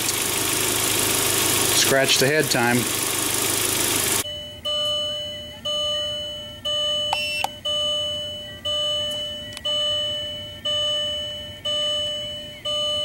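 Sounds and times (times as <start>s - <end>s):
electronic warning chime dinging: 4.2s - 13.0s.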